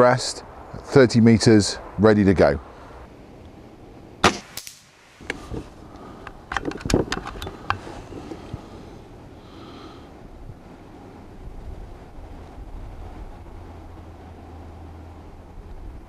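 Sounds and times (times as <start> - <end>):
air rifle shot crack: 4.2 - 5.4.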